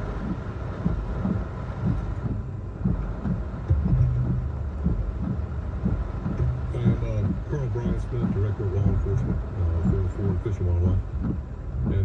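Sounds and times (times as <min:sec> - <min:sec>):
hurricane wind: 0:00.0 - 0:12.0
rain squalls: 0:00.0 - 0:12.0
wind buffeting the microphone: 0:00.0 - 0:12.0.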